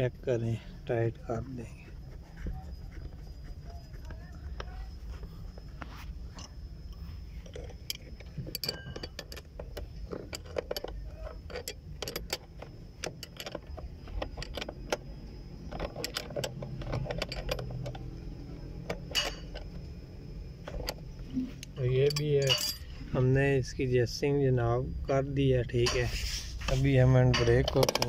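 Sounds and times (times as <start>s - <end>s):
metal tools clinking on nut: 7.4s - 19.8s, 21.7s - 22.9s, 25.8s - 26.1s, 27.0s - 28.0s.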